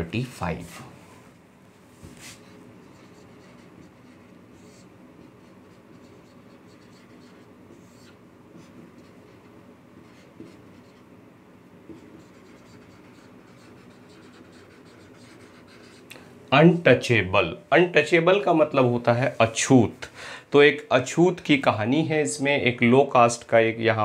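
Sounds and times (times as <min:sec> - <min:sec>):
marker writing on whiteboard: 0:02.0 - 0:11.1, 0:11.8 - 0:16.1.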